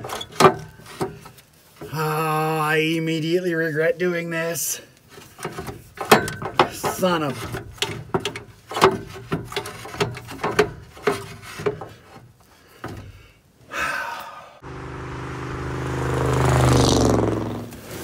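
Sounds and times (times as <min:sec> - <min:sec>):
light knocks and clatters: 0:05.1 - 0:13.2
pickup truck driving past: 0:14.6 - 0:18.0.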